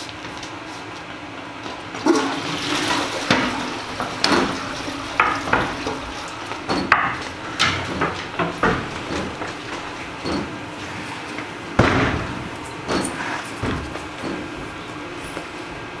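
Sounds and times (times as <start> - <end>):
shoes stamping on tiled floor: 0.0 - 2.1
toilet flushing: 2.0 - 15.5.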